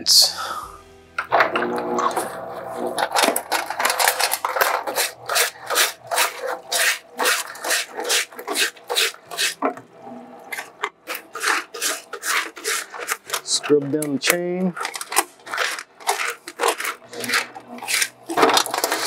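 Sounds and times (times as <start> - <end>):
brush scrubbing wet bicycle chain: 4.7 - 9.6, 11.2 - 13.9, 15.6 - 18.1.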